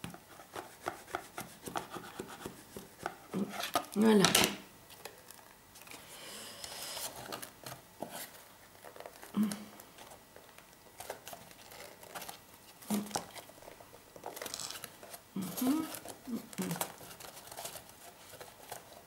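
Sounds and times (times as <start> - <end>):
paper crinkling: 6.6 - 19.0.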